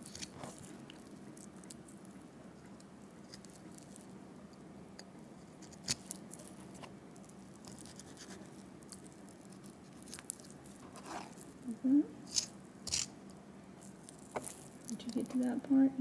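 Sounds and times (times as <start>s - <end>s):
steady low hum: 0.0s - 16.0s
knife scraping and cutting meat: 12.3s - 13.1s.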